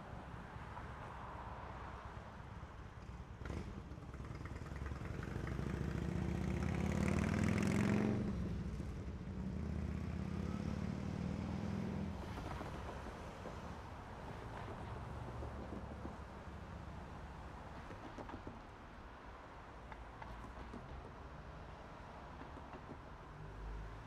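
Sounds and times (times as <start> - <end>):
vehicle engine passing by: 4.6 - 8.7.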